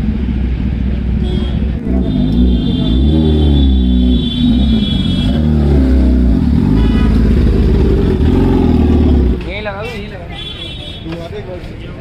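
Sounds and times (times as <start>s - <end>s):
motorcycle engine revving: 0.0s - 9.6s.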